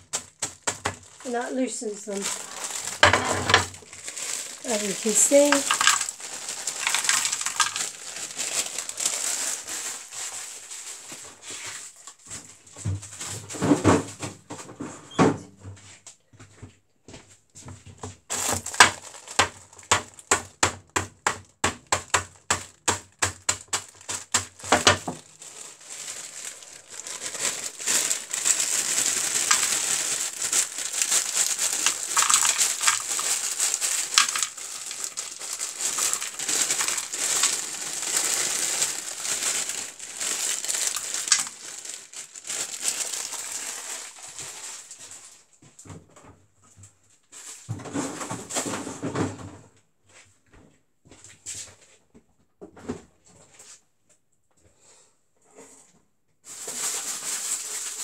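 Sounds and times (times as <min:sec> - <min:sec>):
plastic bag crinkling: 0:00.0 - 0:12.4, 0:18.3 - 0:45.5, 0:56.5 - 0:58.0.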